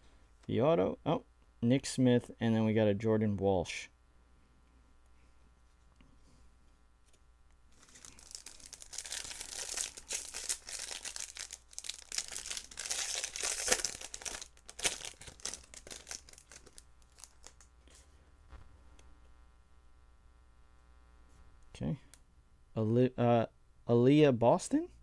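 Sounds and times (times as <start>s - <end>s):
foil wrapper tearing and crinkling: 7.7s - 17.7s.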